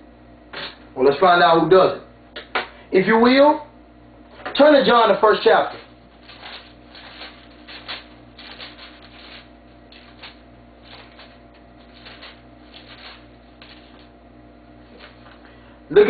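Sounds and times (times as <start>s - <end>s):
low electrical hum: 0.0s - 16.0s
book pages flicking and rustling: 5.7s - 14.2s, 14.9s - 15.4s.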